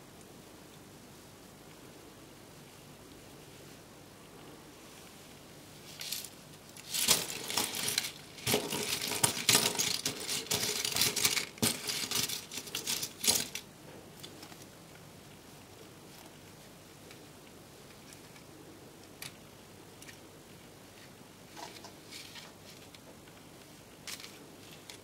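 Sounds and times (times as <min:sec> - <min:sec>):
plastic pieces clattering: 0:06.0 - 0:13.6.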